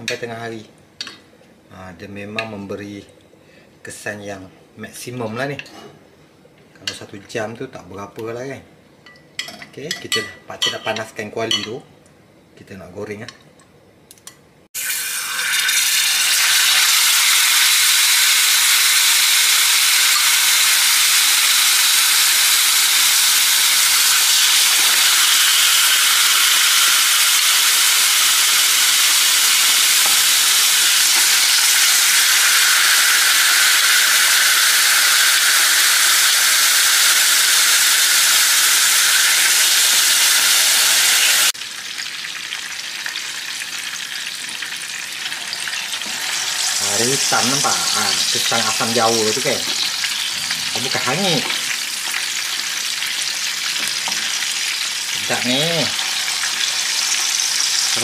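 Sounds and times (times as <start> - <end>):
fish sizzling in hot oil: 14.8 - 58.0.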